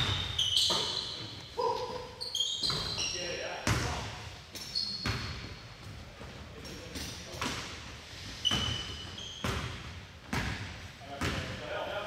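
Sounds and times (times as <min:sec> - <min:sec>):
sneaker squeaks: 0:00.0 - 0:11.6.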